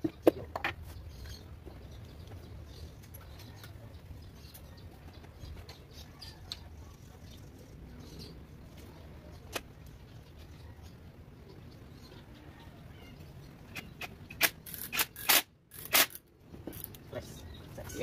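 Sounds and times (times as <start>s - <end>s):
faint chirps and clicks: 0.9s - 7.9s.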